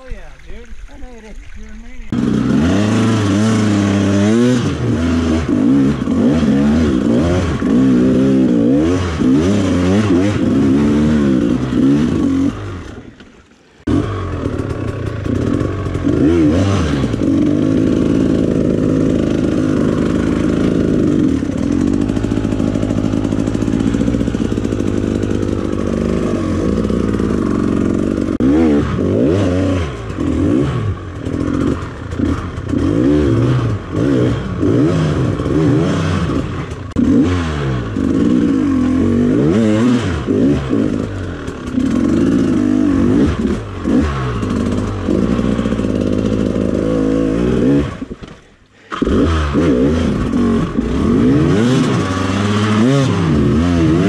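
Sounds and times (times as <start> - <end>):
dirt bike engine revving: 2.0 - 54.0
clatter: 13.0 - 16.3, 29.9 - 34.0, 34.6 - 54.0.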